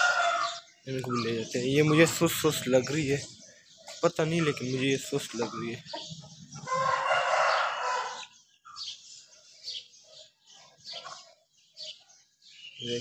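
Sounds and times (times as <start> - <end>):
rooster crowing: 0.0 - 0.7, 6.6 - 8.3
soft clucks and high chirps: 0.0 - 12.3.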